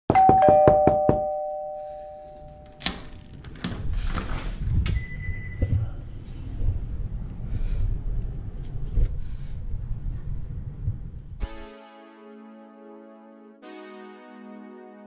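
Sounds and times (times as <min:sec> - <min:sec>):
knocking on a door: 0:00.1 - 0:01.3
two-note doorbell chime: 0:00.1 - 0:02.9.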